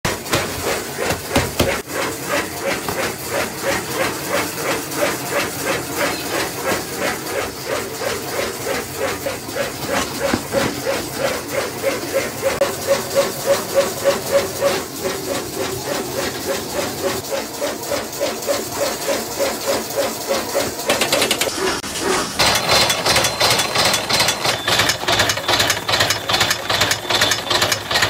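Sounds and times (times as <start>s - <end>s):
machine rhythmic beat: 0.1s - 21.5s.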